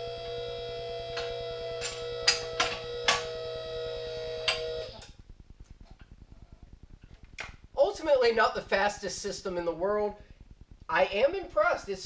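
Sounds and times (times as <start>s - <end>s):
hydraulic pump humming: 0.0s - 5.2s.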